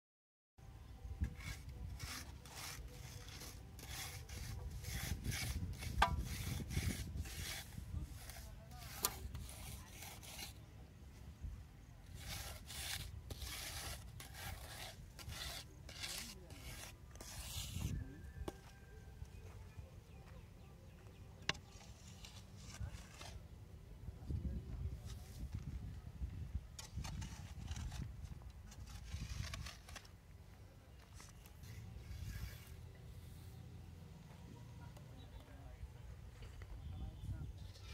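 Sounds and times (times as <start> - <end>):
board scraping wet concrete: 1.3 - 10.7, 12.1 - 18.0, 21.4 - 23.5, 26.8 - 30.2, 31.0 - 33.6.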